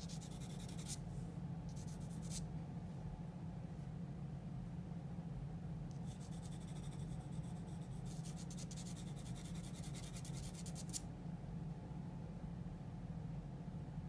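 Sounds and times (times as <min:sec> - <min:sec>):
pencil scratching on paper: 0:00.0 - 0:01.0, 0:06.0 - 0:11.0
low room hum: 0:00.0 - 0:14.0.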